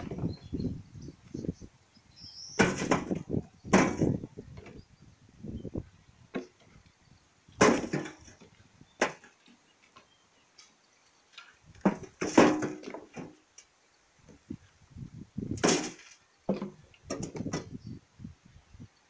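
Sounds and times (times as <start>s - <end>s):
rubble knocking and thudding: 2.6s - 4.8s, 7.6s - 9.4s, 11.7s - 13.4s, 15.5s - 17.8s
rubble scraping: 7.6s - 9.4s.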